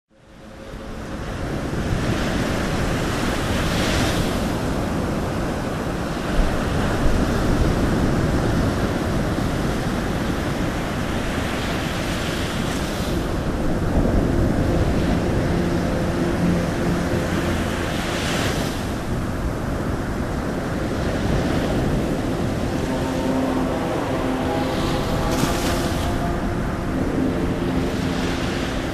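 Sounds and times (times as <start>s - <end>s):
ocean waves surf: 0.1s - 28.9s
faint low held tones: 13.2s - 28.9s.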